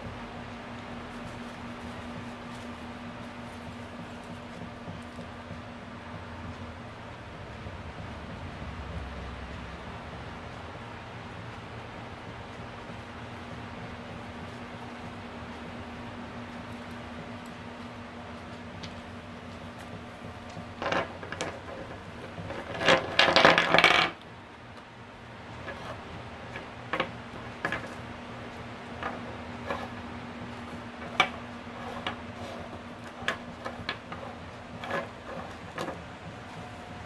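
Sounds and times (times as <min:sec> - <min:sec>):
stones clattering on wooden table: 0:20.8 - 0:21.7, 0:22.4 - 0:24.2, 0:26.5 - 0:28.0.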